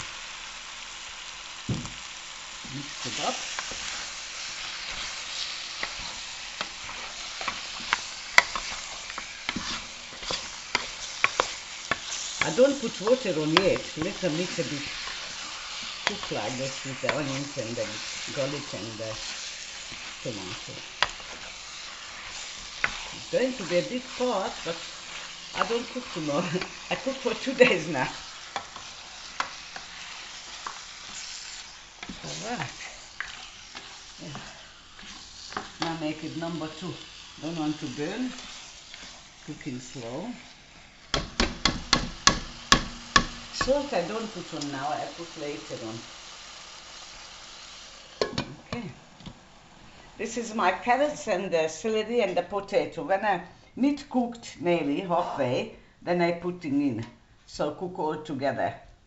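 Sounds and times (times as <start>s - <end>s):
meat sizzling in hot oil: 0.0s - 51.6s
wooden spoon clacking on pot: 41.1s - 43.8s.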